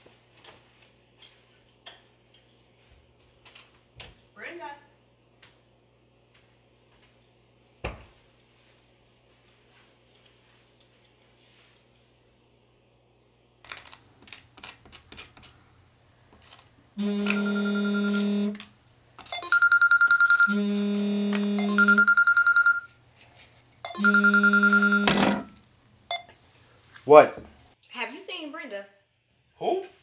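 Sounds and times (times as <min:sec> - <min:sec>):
phone ringtone ringing: 0:17.0 - 0:18.6, 0:19.3 - 0:23.0, 0:23.9 - 0:26.2.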